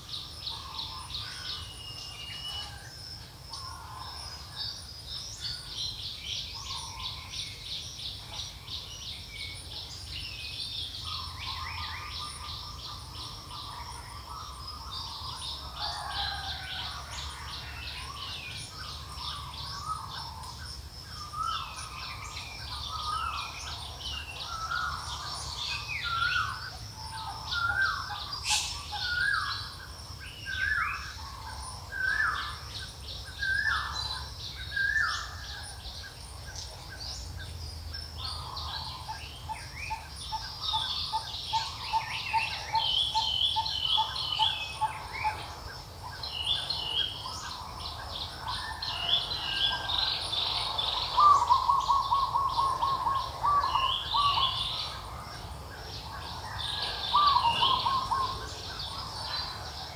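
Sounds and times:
birds whistling: 21.2 - 32.6, 48.3 - 55.1, 56.0 - 59.9
high bird chirps: 28.4 - 29.5.

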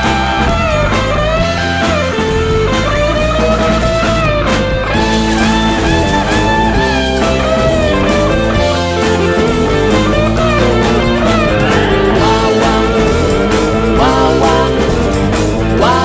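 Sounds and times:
bass and drums: 0.0 - 16.0
electric guitar with slides: 9.5 - 16.0.

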